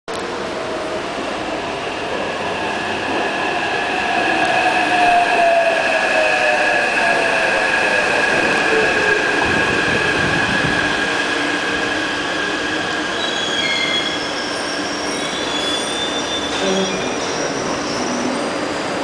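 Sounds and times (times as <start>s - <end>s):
electric train whine: 0.2s - 19.0s
wheel and brake squeals: 13.1s - 18.4s.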